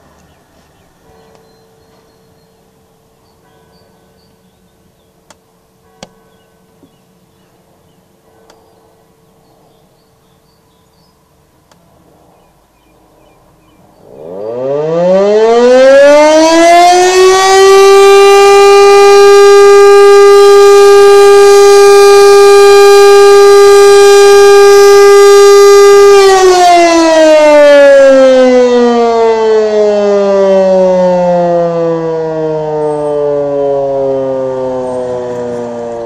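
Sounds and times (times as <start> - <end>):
motor siren wailing: 14.0 - 36.0.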